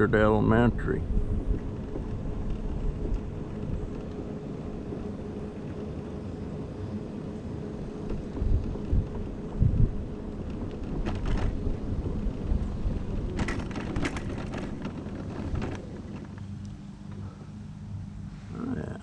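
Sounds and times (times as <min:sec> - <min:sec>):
low thumps over rough pavement: 0:00.0 - 0:18.2
mobility scooter motor humming: 0:00.0 - 0:18.8
rattling clicks: 0:10.3 - 0:17.2.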